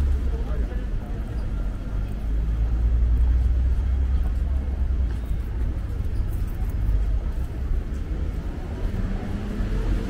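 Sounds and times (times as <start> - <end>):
faint hum of busy pavement: 0.0 - 10.0
low rumble of road traffic: 0.0 - 10.0.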